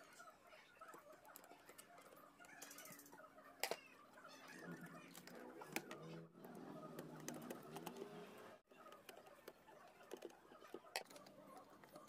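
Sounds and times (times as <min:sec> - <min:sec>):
faint clicks and taps: 0:05.2 - 0:08.2, 0:08.9 - 0:12.0.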